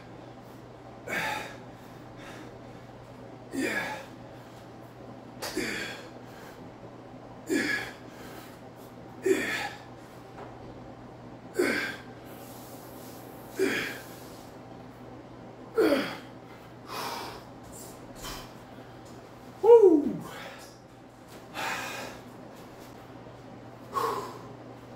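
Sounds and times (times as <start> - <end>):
man grunting with effort: 3.5 - 4.1, 5.4 - 6.1, 7.4 - 8.0, 9.2 - 9.9, 11.5 - 12.1, 13.5 - 14.1, 15.8 - 16.3, 19.6 - 20.6.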